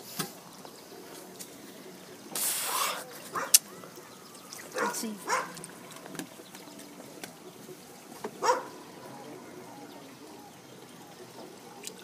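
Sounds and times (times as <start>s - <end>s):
water lapping: 0.0s - 12.0s
dog barking: 3.3s - 3.6s, 4.7s - 5.6s, 8.4s - 8.8s.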